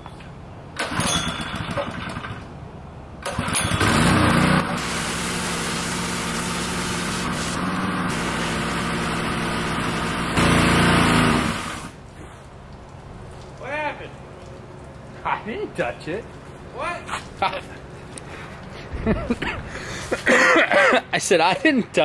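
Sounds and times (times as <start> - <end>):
pressure washer engine running: 3.2 - 12.0.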